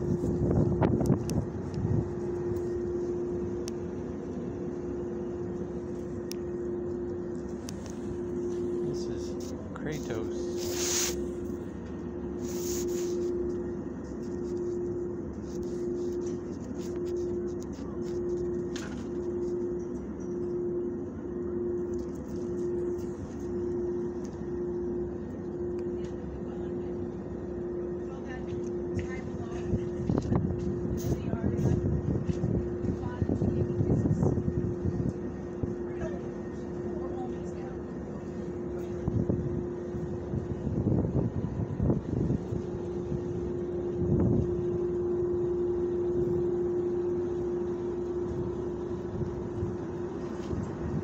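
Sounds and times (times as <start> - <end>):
wind buffeting microphone: 0.0 - 2.4, 29.3 - 35.3, 39.0 - 43.4
mechanical hum with rumble: 0.0 - 51.0.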